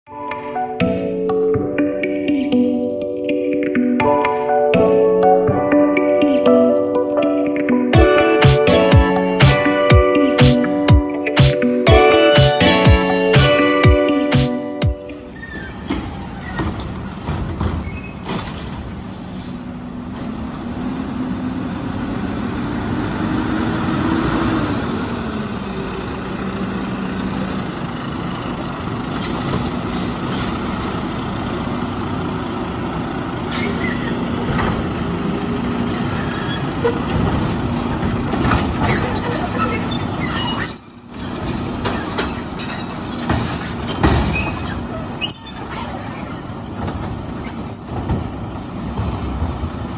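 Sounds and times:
diesel truck engine running: 18.8 - 49.9.

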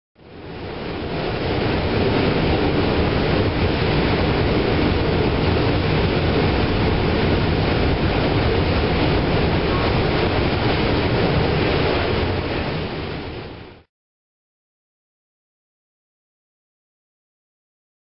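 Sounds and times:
subway wheels rumbling on rails: 0.3 - 13.8.

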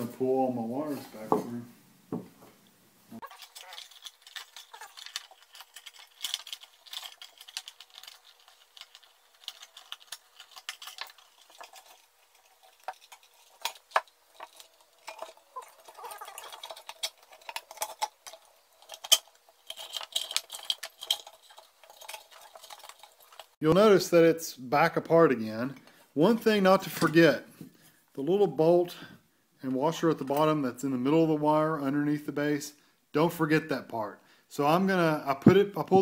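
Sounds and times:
wires rustling and ticking: 2.5 - 23.9.

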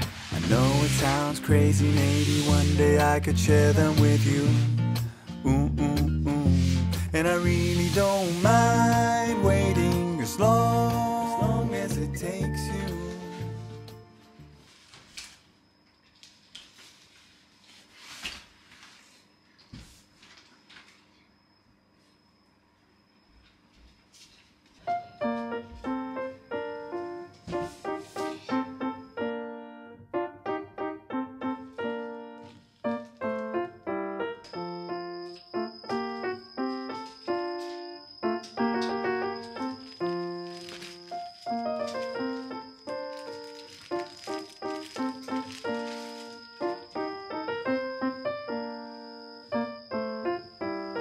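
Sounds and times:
cardboard box scraping: 0.0 - 3.0, 6.5 - 8.6
piano playing light tune: 0.0 - 14.8, 24.8 - 51.0.

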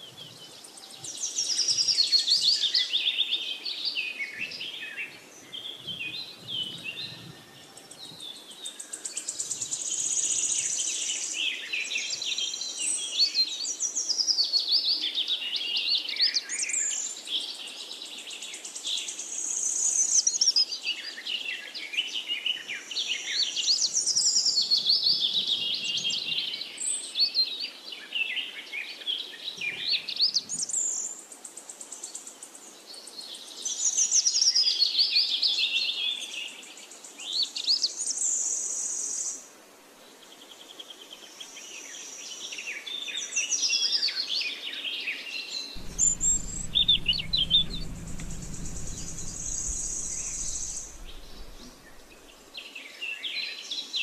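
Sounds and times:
songbirds warbling and twittering: 45.8 - 52.6.

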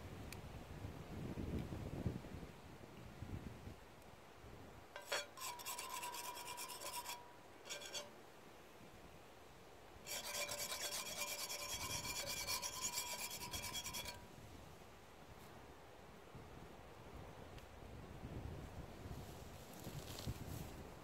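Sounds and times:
knife scraping metal griddle: 5.0 - 8.1, 10.1 - 14.2.

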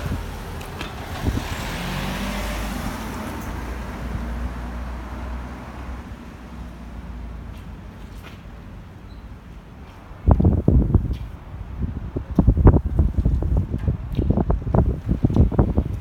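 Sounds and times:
vehicle driving past: 0.0 - 6.6.

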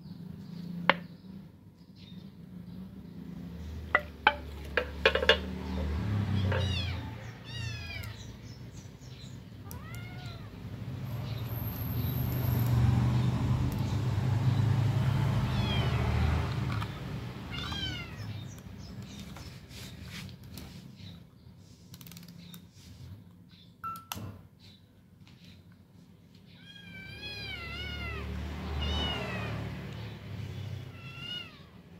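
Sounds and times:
cat meowing: 6.2 - 8.3, 9.6 - 10.7, 15.5 - 16.2, 17.4 - 18.4, 26.5 - 29.7, 30.8 - 31.9.

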